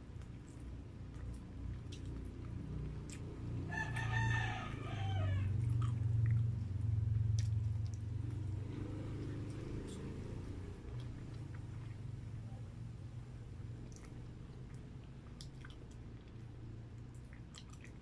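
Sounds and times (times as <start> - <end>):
steady low hum: 0.0 - 18.0
soft clicks from eating: 0.2 - 3.3
rooster crowing: 3.7 - 5.6.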